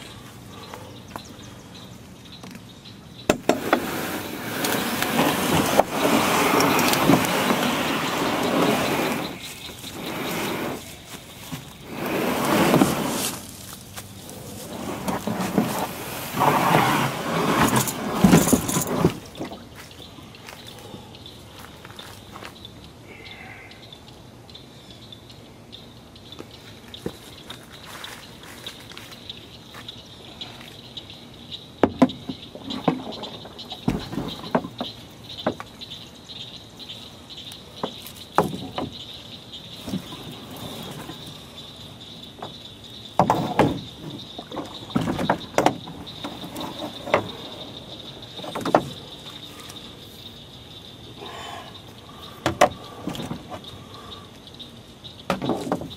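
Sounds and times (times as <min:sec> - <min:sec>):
insect chorus: 0:00.0 - 0:55.9
canoe hull scraping over bank: 0:03.3 - 0:19.8, 0:31.9 - 0:35.6, 0:39.8 - 0:41.6, 0:42.4 - 0:49.8
paddle knocking canoe hull: 0:43.2 - 0:47.5.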